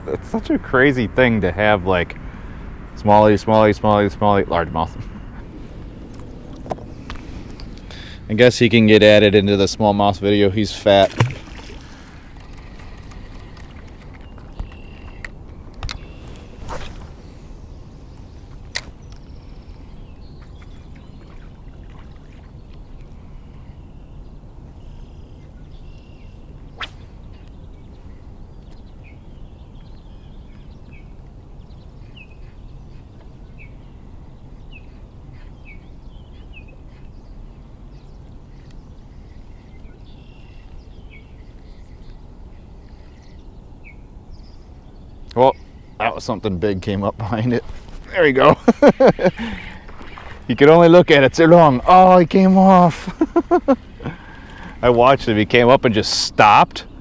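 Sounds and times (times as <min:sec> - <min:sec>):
low background hiss: 0:00.0 - 0:57.0
small birds chirping: 0:00.0 - 0:57.0
fishing rod swish: 0:15.9 - 0:17.5, 0:26.8 - 0:27.1.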